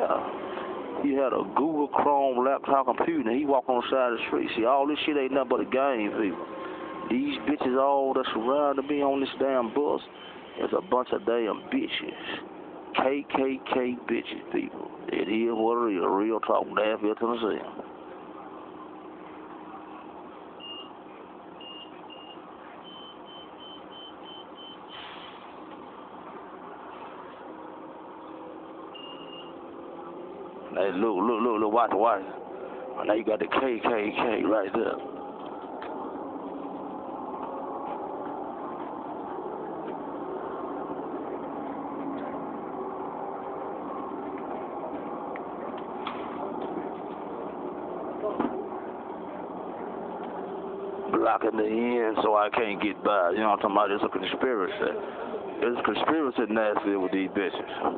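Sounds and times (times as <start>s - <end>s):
bus running noise: 0.0s - 57.9s.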